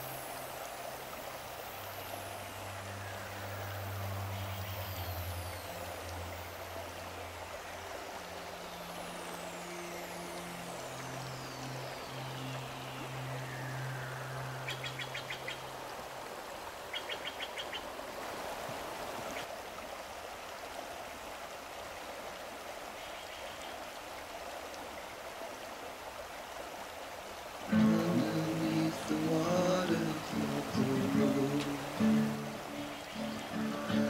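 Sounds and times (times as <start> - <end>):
river rushing over boulders: 0.0 - 34.0
bird trills: 11.8 - 15.7, 16.9 - 17.8, 32.0 - 34.0.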